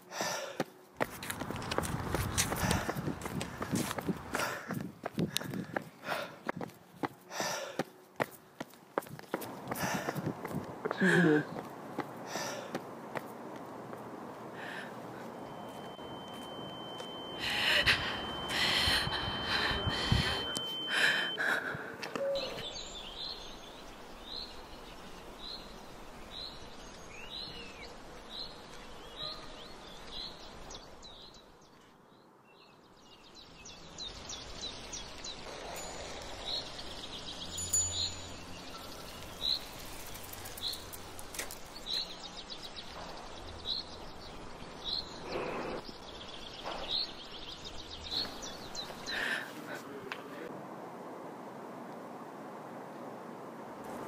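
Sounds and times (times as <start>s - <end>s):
steady high tone: 15.2s - 21.4s
bird chirping: 22.1s - 49.4s.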